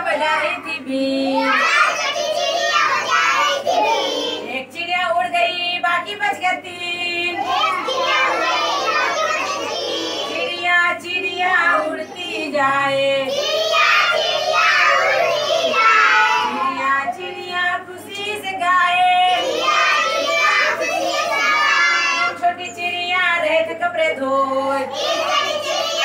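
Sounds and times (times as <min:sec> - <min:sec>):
children singing: 0:01.3 - 0:04.5, 0:07.4 - 0:10.7, 0:11.6 - 0:17.2, 0:19.2 - 0:22.4, 0:24.9 - 0:26.0.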